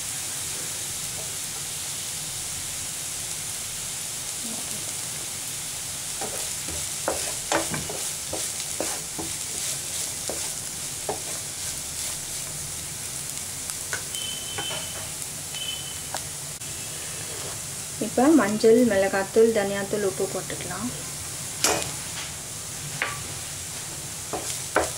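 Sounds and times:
vegetables sizzling in oil: 0.0 - 24.9
wooden spatula scraping pan: 6.2 - 12.2, 17.1 - 17.6.

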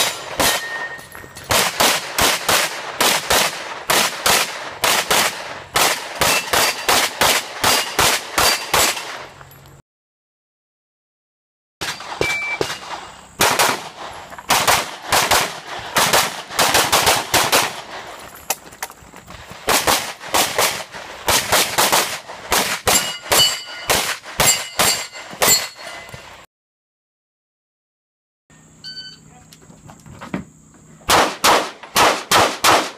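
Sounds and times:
steel targets ringing: 0.0 - 1.5, 6.2 - 7.0, 7.7 - 9.0, 11.8 - 13.2, 22.8 - 26.4
pistol shots: 0.0 - 9.3, 11.8 - 18.0, 19.7 - 25.7, 31.1 - 32.9
shot timer beep: 12.2 - 12.6, 28.8 - 29.2.

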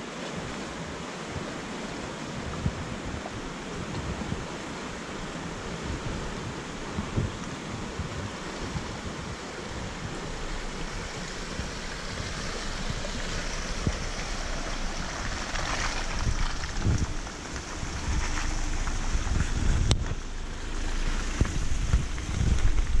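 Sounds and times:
creek water rushing: 0.0 - 23.0
wind buffeting microphone: 0.4 - 23.0
tyres on gravel: 9.4 - 23.0.

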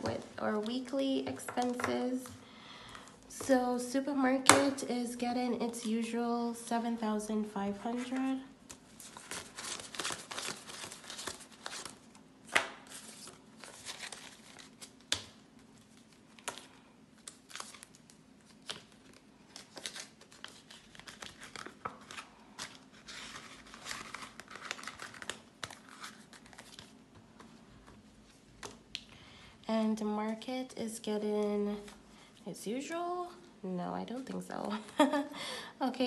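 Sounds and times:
banknotes rustling and flicking: 7.8 - 28.8.

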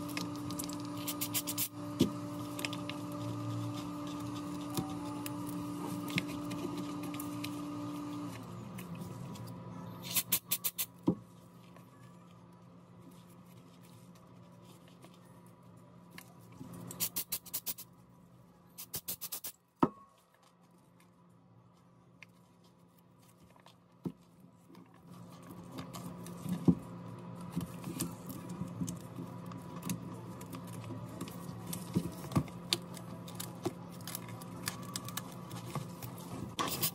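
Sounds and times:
steady hum: 0.0 - 19.5.

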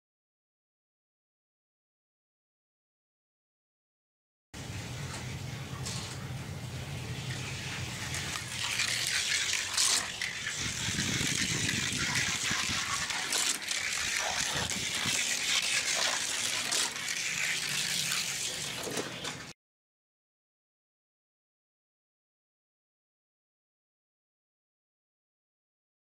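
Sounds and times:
toy car wheels rattling on track: 8.0 - 19.5.

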